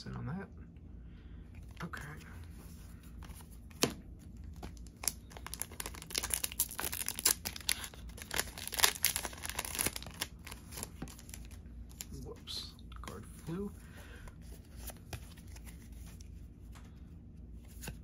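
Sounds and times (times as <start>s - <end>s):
wrapper tearing and crinkling: 4.6s - 12.2s.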